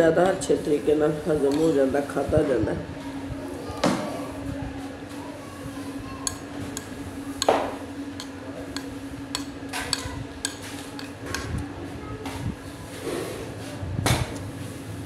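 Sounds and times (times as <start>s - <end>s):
steady low hum: 0.0s - 15.0s
metal spoon clinking on plate: 8.2s - 11.5s.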